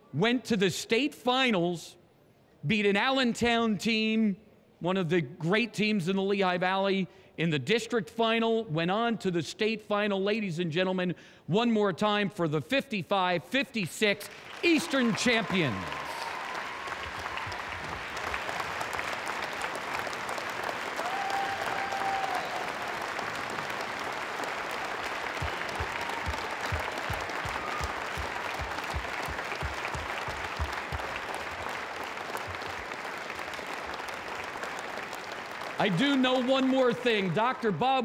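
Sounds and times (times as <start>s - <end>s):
crowd applauding: 14.2s - 38.0s
low thumps: 25.4s - 31.2s.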